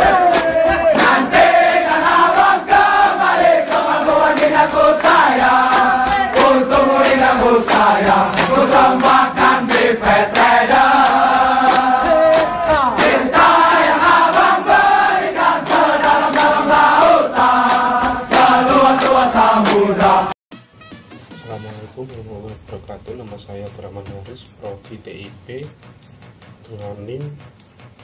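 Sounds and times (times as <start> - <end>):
choir singing long notes: 0.0 - 20.4
sharp percussive hits: 0.0 - 28.0.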